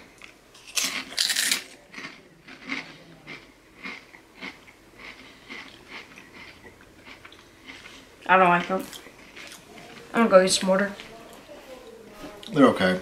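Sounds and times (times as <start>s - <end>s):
chewing potato chips crunching: 0.2s - 10.3s.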